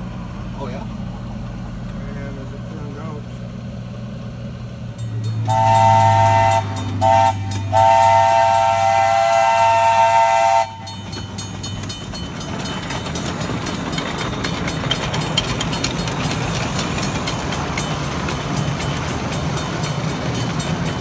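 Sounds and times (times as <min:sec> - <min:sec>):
train running with light clatter: 0:00.0 - 0:21.0
steam locomotive chime whistle: 0:05.0 - 0:11.8.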